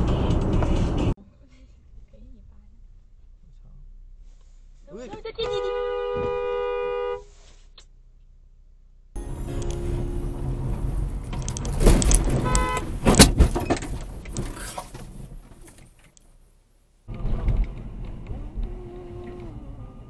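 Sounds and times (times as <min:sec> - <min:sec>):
car driving noise: 0:00.0 - 0:01.2, 0:07.7 - 0:20.0
sharp knocks and bangs: 0:10.6 - 0:15.1.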